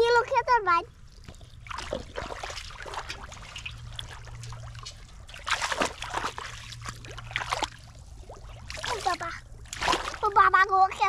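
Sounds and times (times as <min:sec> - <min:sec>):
pond water splashing and trickling: 0:00.0 - 0:11.0
water dripping: 0:00.9 - 0:10.4.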